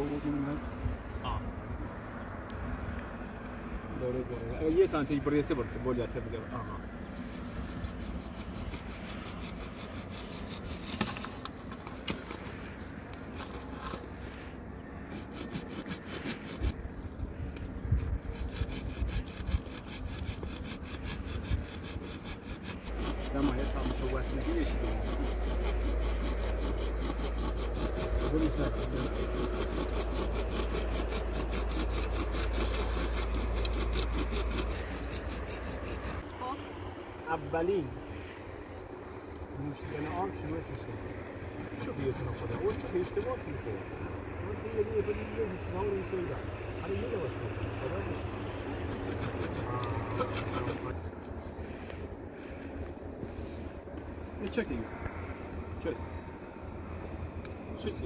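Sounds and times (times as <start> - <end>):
hand saw cutting plastic pipe: 7.1 - 12.8, 15.1 - 16.8, 18.0 - 36.3, 39.8 - 43.6, 48.6 - 53.4.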